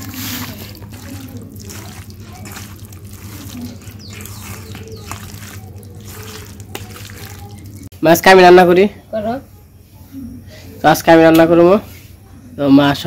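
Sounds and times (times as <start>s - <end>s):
hands squishing wet meat: 0.0s - 7.9s.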